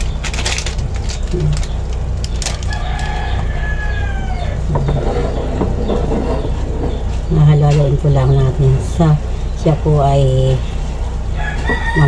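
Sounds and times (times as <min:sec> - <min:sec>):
rooster crowing: 0:02.5 - 0:04.8, 0:11.3 - 0:12.0.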